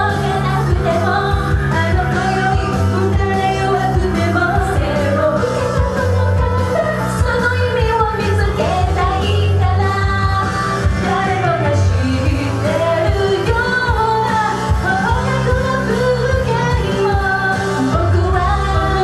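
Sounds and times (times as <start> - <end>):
backing track with bass beat: 0.0 - 19.0
female vocals singing pop song: 0.0 - 19.0.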